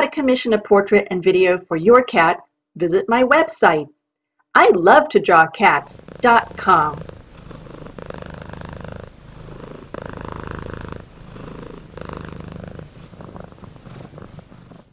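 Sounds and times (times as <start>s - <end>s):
cat purring: 5.7s - 14.9s.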